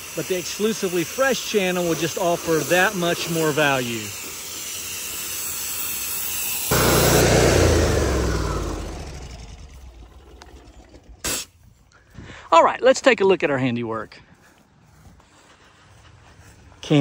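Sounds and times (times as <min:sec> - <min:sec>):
steady hiss: 0:00.0 - 0:06.9
burst of noise: 0:06.5 - 0:09.7
engine passing by: 0:06.7 - 0:11.2.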